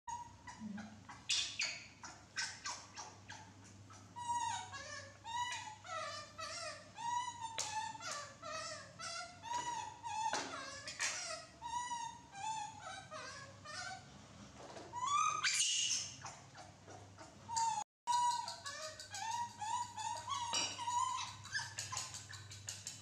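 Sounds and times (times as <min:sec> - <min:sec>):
baby monkeys squeaking and cooing: 0:00.1 - 0:14.0, 0:14.9 - 0:23.0.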